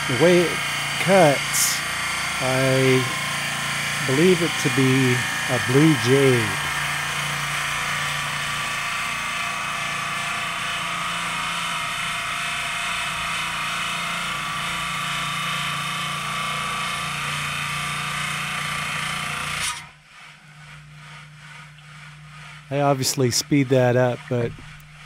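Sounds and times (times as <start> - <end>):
saw blade grinding through rock: 0.0 - 8.1, 20.8 - 24.8
saw motor hum: 0.0 - 25.0.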